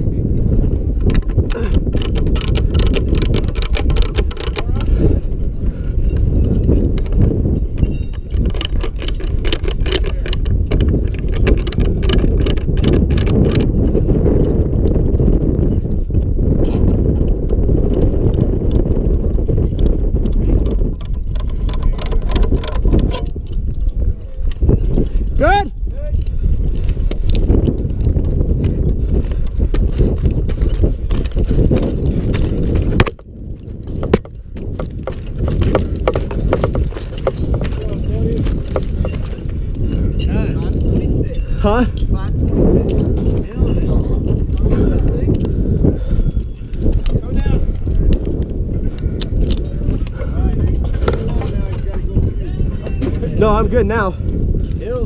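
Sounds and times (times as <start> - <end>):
low rumble on microphone: 0.0 - 55.0
climbing spikes knocking wooden pole: 0.4 - 5.1, 6.0 - 25.6, 26.3 - 54.0
metal hardware clinking: 6.1 - 13.7, 26.2 - 45.5
ratchet wrench clicking: 7.8 - 13.6.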